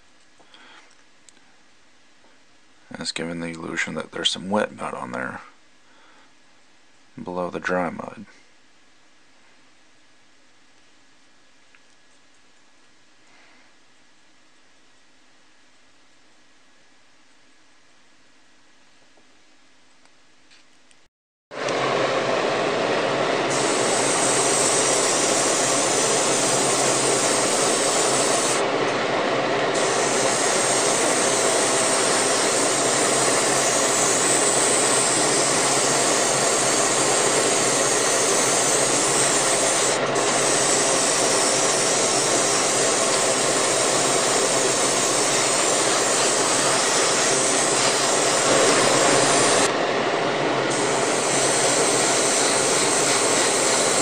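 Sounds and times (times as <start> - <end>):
extractor fan rushing: 21.6 - 54.0
airbrush hissing: 23.4 - 28.7, 29.7 - 49.7, 50.7 - 54.0.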